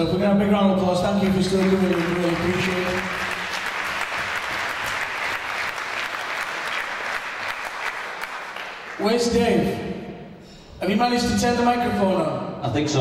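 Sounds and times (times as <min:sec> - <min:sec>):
audience applauding: 0:01.0 - 0:09.4.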